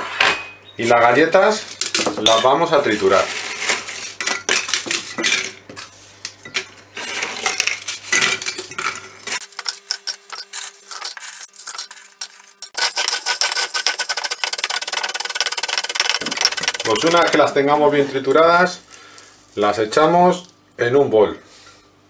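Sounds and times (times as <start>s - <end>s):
biscuits snapping and clattering: 1.7s - 2.4s, 4.1s - 6.7s
biscuits crushed with wooden stick: 12.8s - 17.5s.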